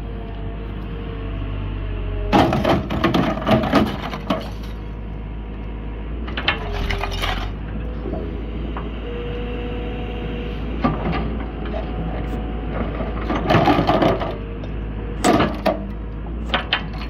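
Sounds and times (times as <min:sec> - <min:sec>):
excavator engine droning: 0:00.0 - 0:17.0
metal crunching and cracking: 0:02.3 - 0:04.9.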